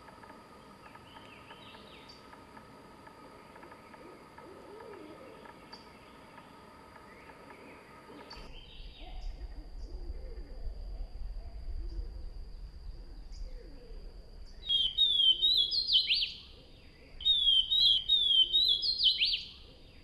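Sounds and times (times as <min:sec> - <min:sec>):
insect drone: 0:00.0 - 0:20.0
songbird chirps and trills: 0:00.0 - 0:20.0
low hoot-like call: 0:00.9 - 0:05.9
low rumble: 0:08.4 - 0:14.6.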